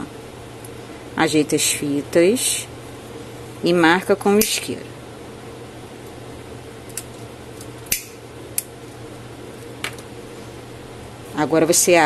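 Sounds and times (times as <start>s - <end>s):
faint steady hum: 0.0s - 12.0s
lighter clicks: 7.9s - 8.7s.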